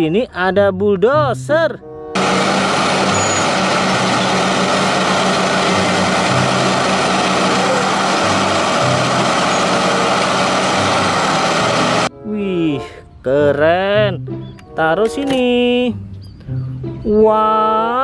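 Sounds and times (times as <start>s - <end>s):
bulldozer engine rumble: 2.2s - 12.1s
dense mechanical noise: 2.2s - 12.1s.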